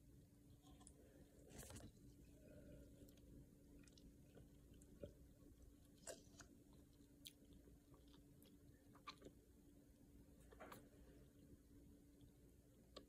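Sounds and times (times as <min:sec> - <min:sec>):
faint hum: 0:00.0 - 0:13.0
drinking and swallowing noises: 0:00.6 - 0:09.6.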